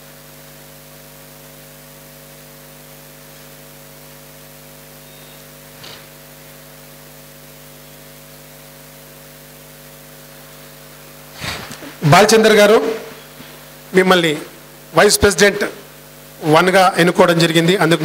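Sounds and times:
constant hiss: 0.0 - 18.0
electrical mains hum: 0.0 - 18.0.

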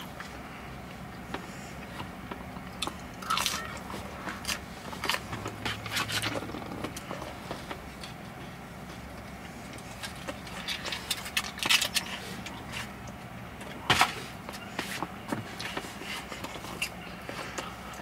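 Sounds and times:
chewing crunches and mouth smacks: 0.1 - 8.3, 8.9 - 14.2.

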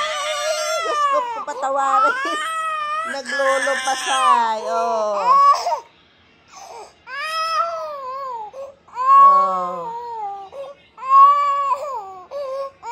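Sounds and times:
toddler crying: 0.0 - 5.9.

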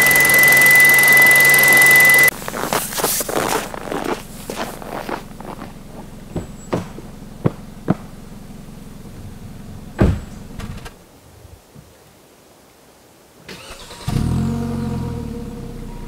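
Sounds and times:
steady low hum: 0.0 - 10.8
heavy thump: 6.3 - 8.2, 10.0 - 10.8.

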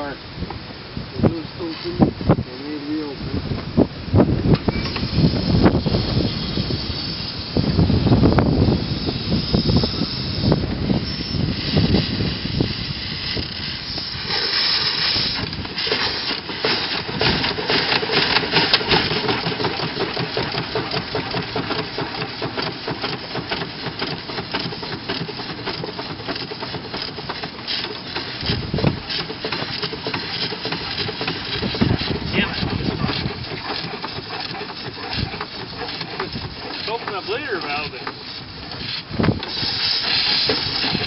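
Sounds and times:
steam hissing: 4.7 - 41.0
steam engine chuffing: 4.8 - 41.0.

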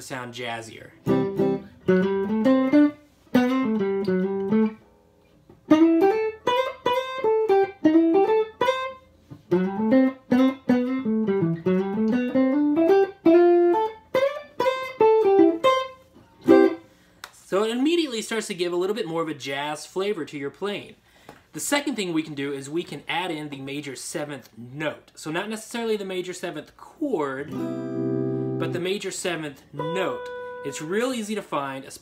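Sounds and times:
electric guitar playing licks: 1.0 - 4.8, 5.6 - 16.8, 27.5 - 29.0, 29.7 - 31.0.

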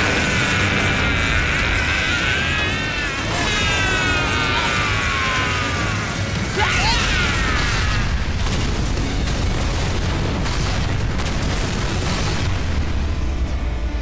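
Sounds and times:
explosion rumble: 5.8 - 14.0.

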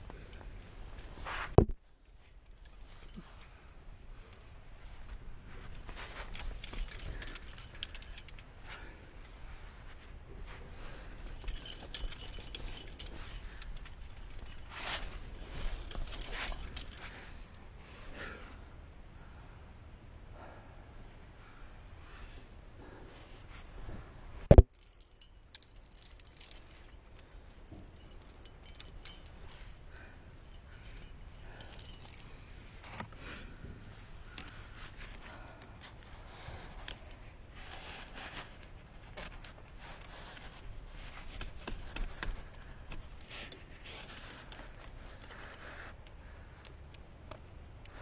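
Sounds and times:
climbing gear clinking: 0.0 - 18.5, 24.5 - 48.0
jacket scraping against rock: 10.9 - 17.3.

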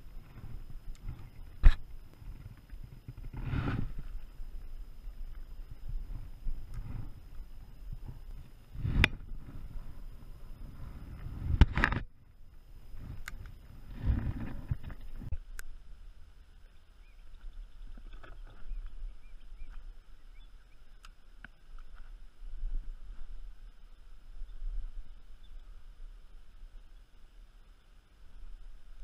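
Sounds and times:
knocks and rumbling in kayak: 13.0 - 15.4.

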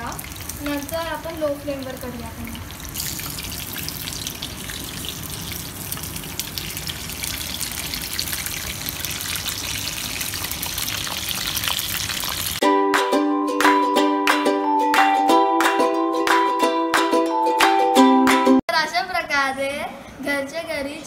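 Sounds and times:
food deep-frying in oil: 0.0 - 12.6
plucked-string background music: 12.6 - 18.6.

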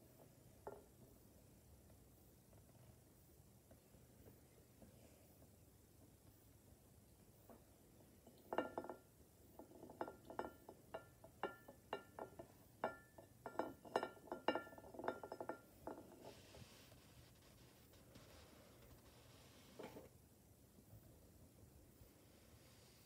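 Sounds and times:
ceramic plate clinking: 8.3 - 9.0, 9.6 - 16.3.

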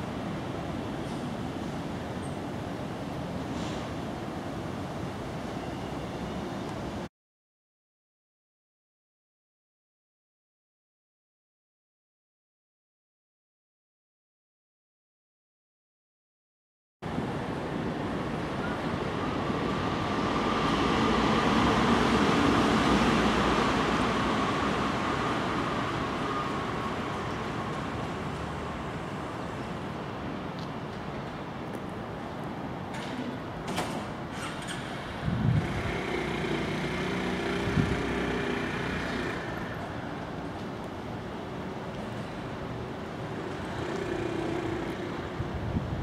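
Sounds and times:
passing traffic rumble: 17.0 - 46.0.

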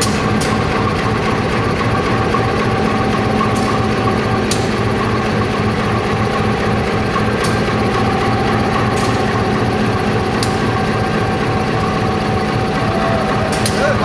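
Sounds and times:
diesel locomotive engine idling: 0.0 - 14.0
sharp clicks: 13.5 - 13.8.

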